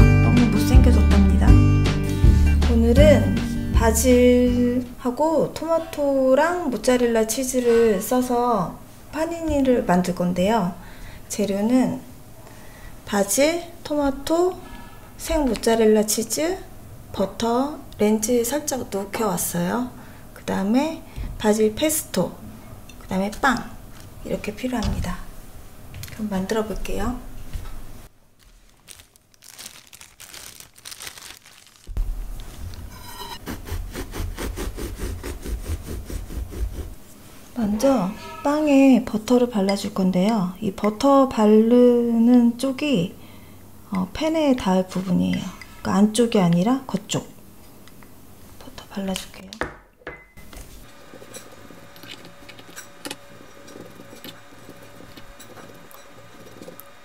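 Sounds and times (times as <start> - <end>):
paper bag crinkling: 28.3 - 32.7
faint steady hum: 31.9 - 49.6
bread knife sawing loaf: 33.4 - 37.0.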